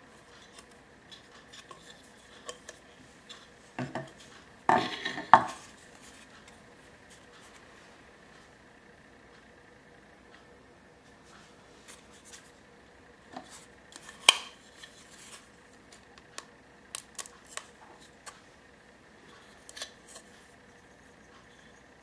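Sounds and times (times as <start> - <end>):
plastic cup clicking and scraping: 0.4 - 6.6.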